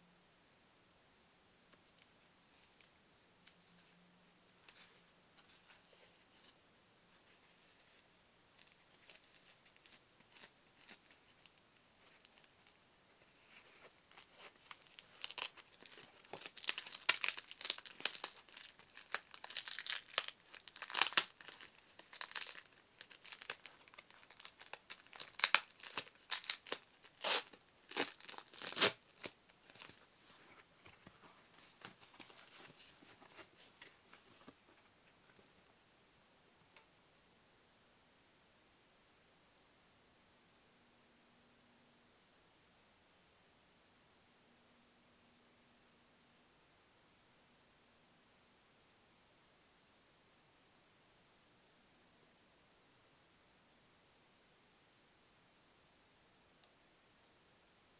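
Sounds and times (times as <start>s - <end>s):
foam packing crinkling: 8.6s - 33.9s
sticky tape tearing: 14.7s - 29.4s.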